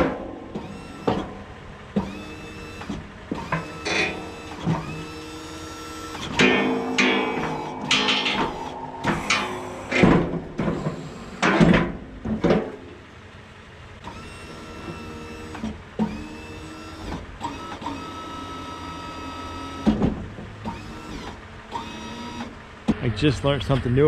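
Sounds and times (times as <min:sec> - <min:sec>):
hydraulic pump motor whining: 0:00.0 - 0:11.8, 0:14.0 - 0:20.0, 0:20.6 - 0:22.6
loud clunks: 0:06.2 - 0:12.9.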